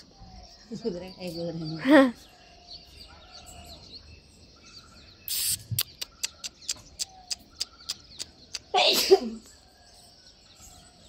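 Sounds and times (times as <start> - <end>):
short hiss: 5.3 - 5.9
tongue clicks: 5.3 - 8.8.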